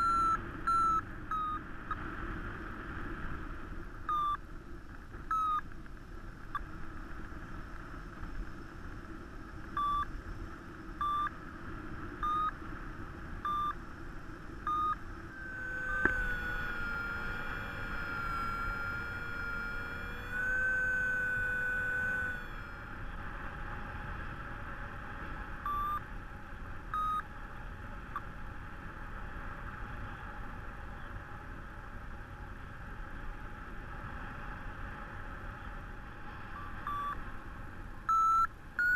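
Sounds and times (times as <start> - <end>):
steady wavering tone: 0.0 - 2.0, 9.7 - 23.9
variometer beeps: 0.0 - 2.0, 4.0 - 4.4, 5.3 - 5.7, 9.7 - 10.2, 11.0 - 11.4, 12.2 - 12.6, 13.4 - 13.8, 14.6 - 22.9, 25.6 - 26.1, 26.9 - 27.3, 36.5 - 37.2, 38.1 - 38.9
wind on microphone: 0.0 - 38.1.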